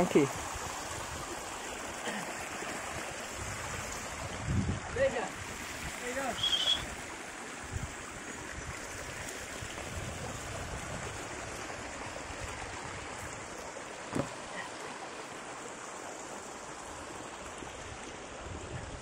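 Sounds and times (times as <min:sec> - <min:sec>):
creek water rushing over rocks: 0:00.0 - 0:19.0
low thump: 0:14.1 - 0:14.4.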